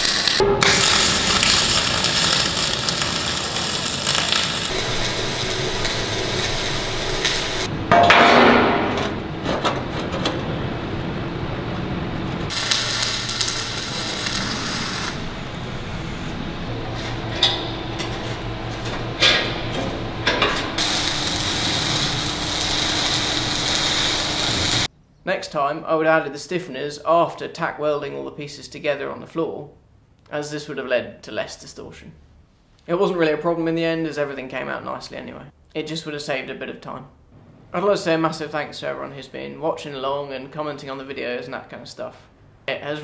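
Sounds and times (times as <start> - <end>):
arc welding crackling hiss: 0.0 - 7.7, 12.5 - 16.4, 20.6 - 24.9.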